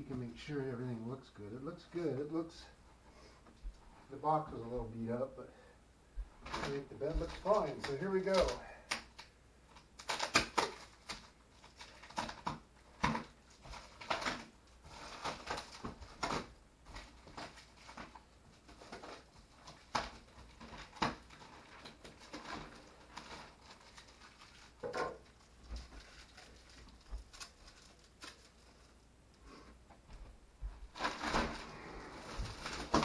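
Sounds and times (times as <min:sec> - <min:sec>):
plastic wrapping crinkling: 0:06.4 - 0:29.1, 0:30.8 - 0:33.0.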